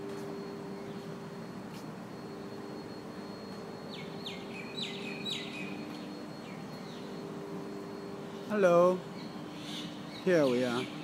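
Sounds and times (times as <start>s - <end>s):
machine hum with high whine: 0.0s - 11.0s
bird chirping: 3.9s - 7.2s, 9.1s - 11.0s.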